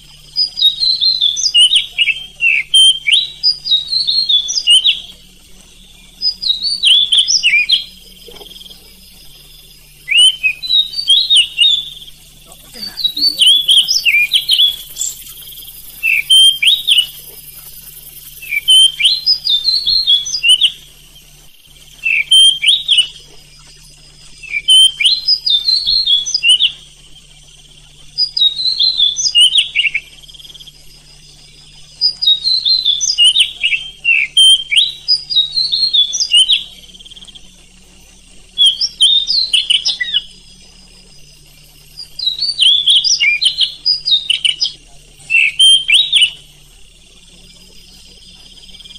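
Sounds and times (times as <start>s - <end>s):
bird singing whistled phrases: 0.3s - 5.2s, 5.8s - 9.0s, 9.7s - 20.9s, 22.0s - 23.8s, 24.4s - 26.9s, 28.2s - 30.6s, 32.0s - 36.9s, 38.6s - 40.4s, 42.0s - 46.5s.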